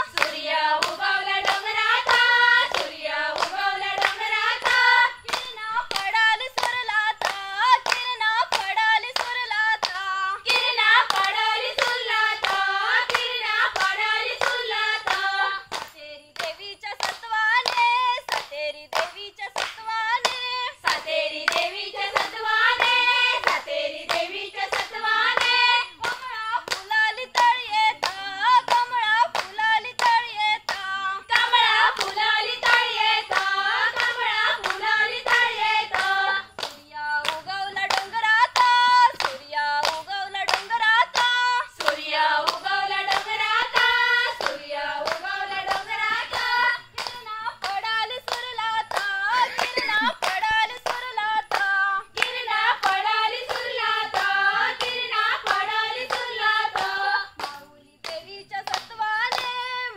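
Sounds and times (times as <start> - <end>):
hands clapping rhythmically: 0.0 - 59.9
women singing folk song: 0.0 - 59.9.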